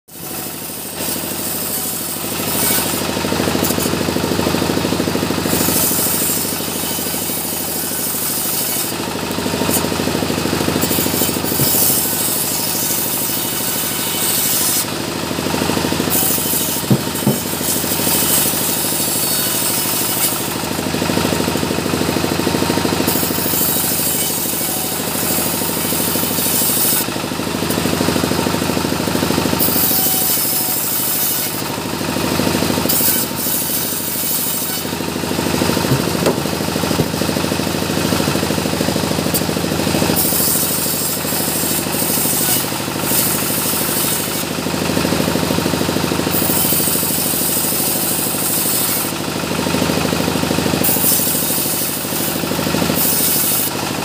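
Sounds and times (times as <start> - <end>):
sawmill saw cutting wood: 0.1 - 54.0
sharp knocks: 16.9 - 17.5, 35.8 - 37.2.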